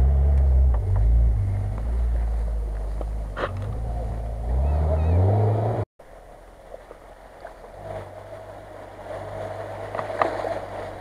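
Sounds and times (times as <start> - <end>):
water washing around wheels: 0.0 - 5.3, 6.0 - 11.0
car engine running at low revs: 0.0 - 11.0.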